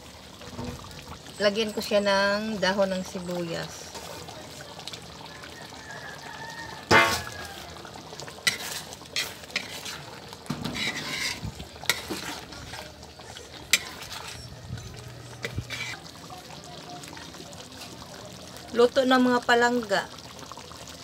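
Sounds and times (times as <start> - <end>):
sauce sizzling: 0.0 - 21.0
metal ladle scraping a wok: 6.9 - 7.6, 8.4 - 16.2.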